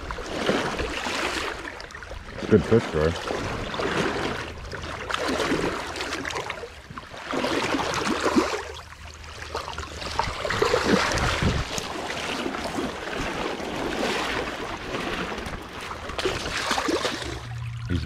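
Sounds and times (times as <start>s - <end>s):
water splashing and sloshing: 0.0s - 18.0s
stream current rushing: 7.2s - 17.9s.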